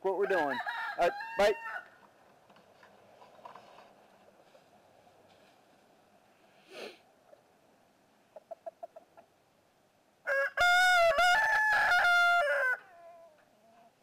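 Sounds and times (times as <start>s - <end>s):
rooster crowing: 0.2s - 2.0s, 10.2s - 13.3s
chicken clucking: 8.2s - 9.4s.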